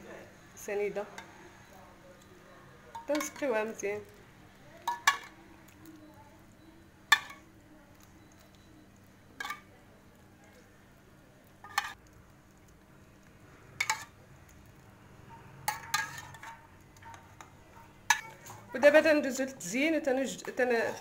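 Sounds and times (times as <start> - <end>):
spoon clinking metal bowl: 2.9 - 3.5, 15.7 - 16.6, 18.1 - 18.6.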